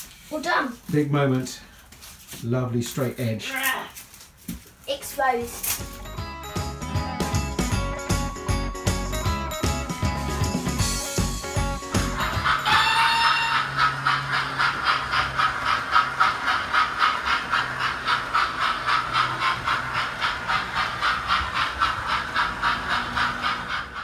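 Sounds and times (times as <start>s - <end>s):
model steam locomotive chuffing: 12.0s - 24.0s.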